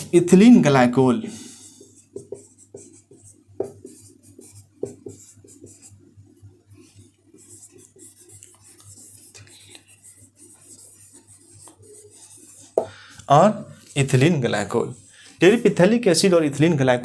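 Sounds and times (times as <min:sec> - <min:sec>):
marker writing on a whiteboard: 0:01.4 - 0:16.0
marker tapping on a whiteboard: 0:01.8 - 0:05.8, 0:12.6 - 0:13.0.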